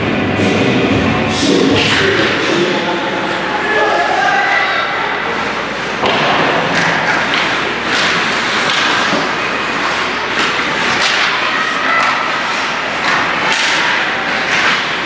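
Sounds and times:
skates on ice: 5.3 - 15.0
hockey sticks and puck knocking: 6.0 - 15.0.

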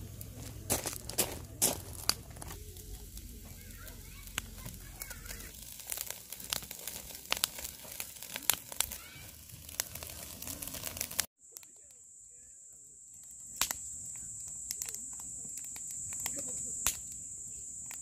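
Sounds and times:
crinkling and rustling: 0.0 - 11.3.

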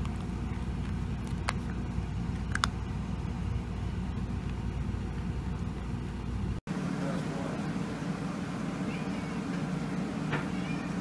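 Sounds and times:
puppy chewing dry kibble: 0.0 - 5.8.

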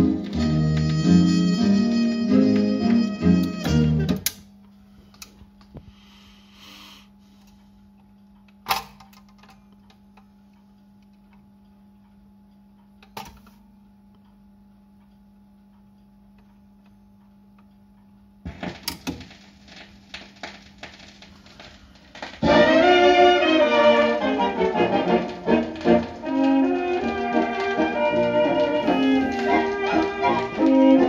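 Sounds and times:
mains hum: 0.0 - 31.0
record dropping onto platter: 18.4 - 31.0
stylus crackling in groove: 19.7 - 31.0
mechanism ticking: 24.4 - 31.0.

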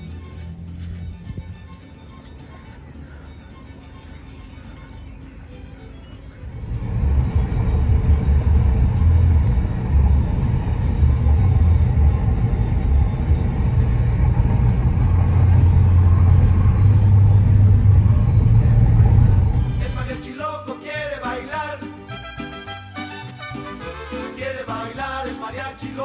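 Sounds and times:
road and engine rumble: 0.0 - 20.2
music playing: 0.0 - 26.0.

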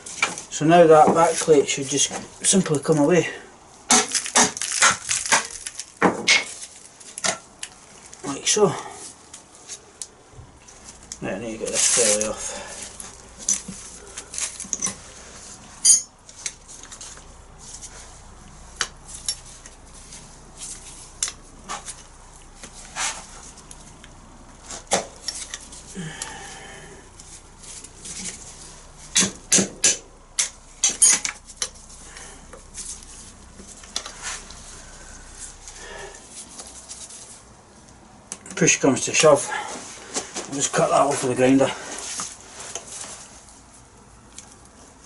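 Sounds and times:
metallic clinks and knocks: 15.8 - 16.2, 30.4 - 31.8.

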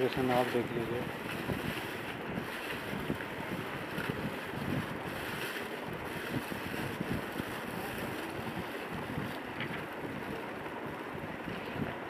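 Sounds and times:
paper and plastic rustling: 0.0 - 10.5
wind rushing on microphone: 0.0 - 12.0.

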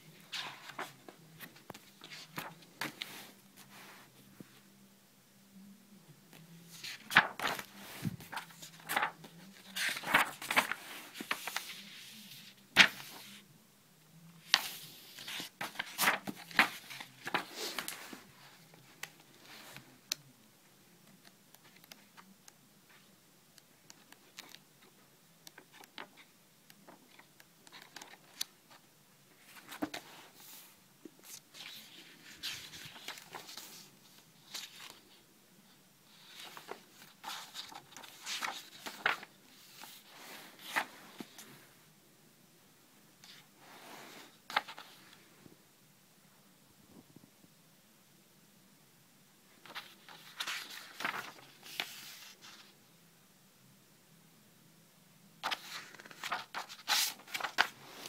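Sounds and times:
paper rustling and snapping: 6.8 - 11.8, 14.5 - 18.1, 36.3 - 39.9, 49.6 - 52.2, 55.4 - 57.8.

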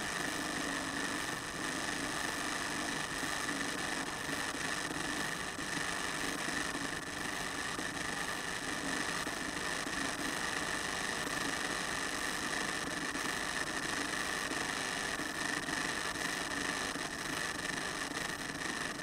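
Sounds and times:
steady hiss with high whine: 0.0 - 19.0.

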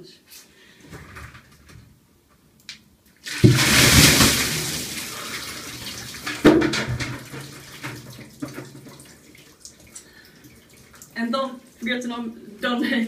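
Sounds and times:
water splashing over person: 3.2 - 9.8
water pouring and splashing: 3.2 - 12.0.

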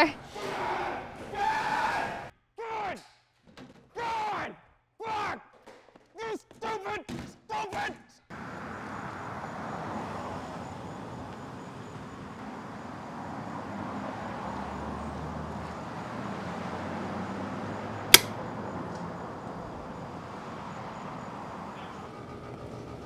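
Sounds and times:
sharp click: 18.1 - 18.4.

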